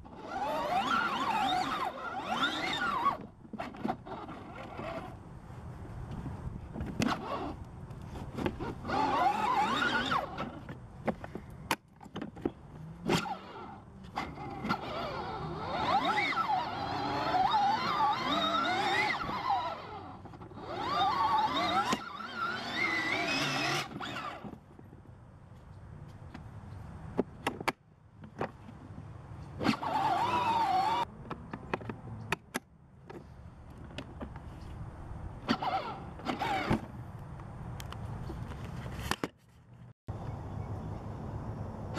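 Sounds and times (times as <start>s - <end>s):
electric drive whining: 0.0s - 5.2s, 13.0s - 24.6s, 29.6s - 31.1s
toy car electric motor whirring: 0.0s - 5.2s, 8.3s - 10.8s, 13.0s - 24.6s, 29.6s - 31.1s, 35.4s - 36.9s.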